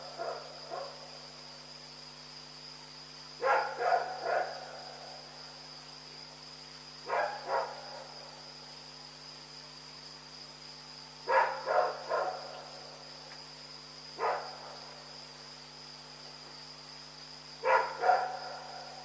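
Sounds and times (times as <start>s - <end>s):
steady high-pitched hum: 0.0s - 19.0s
dog barking: 0.2s - 1.0s, 3.4s - 4.7s, 7.1s - 8.1s, 11.3s - 12.6s, 14.2s - 14.8s, 17.6s - 19.0s.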